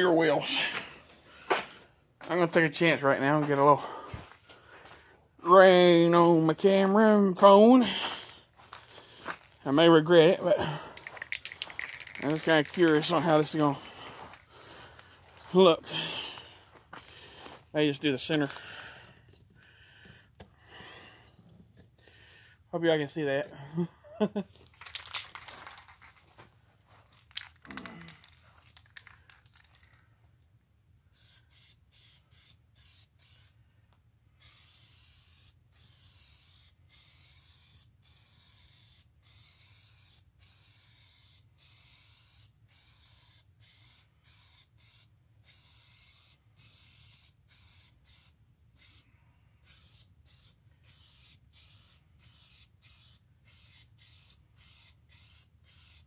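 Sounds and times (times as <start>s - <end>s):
spray paint can hissing: 11.0s - 13.3s, 31.2s - 33.6s, 34.4s - 49.0s, 49.6s - 56.0s.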